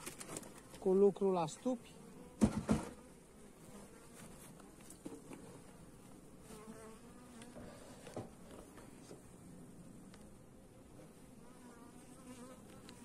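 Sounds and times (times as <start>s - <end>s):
bees buzzing: 1.6s - 8.4s
small ticks: 12.6s - 13.0s.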